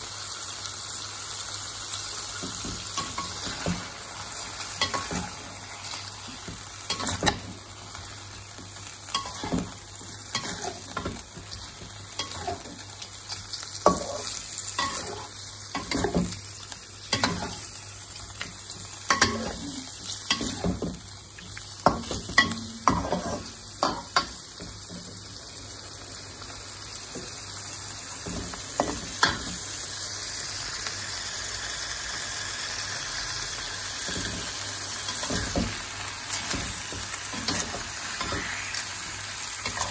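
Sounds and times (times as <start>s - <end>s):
food sizzling in a wok: 0.0s - 39.9s
metal spatula scraping a wok: 10.3s - 11.2s, 37.3s - 38.9s.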